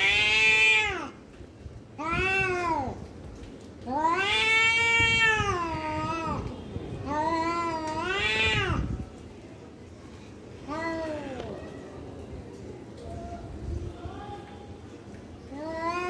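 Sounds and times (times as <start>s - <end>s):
cats yowling: 0.0s - 1.0s, 3.9s - 6.2s.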